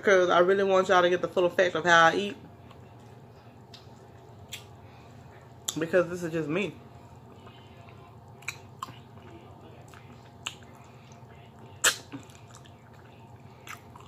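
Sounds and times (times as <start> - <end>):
wet lip smacks: 4.5 - 4.7, 11.8 - 14.0
person chewing and sucking meat: 7.4 - 14.0.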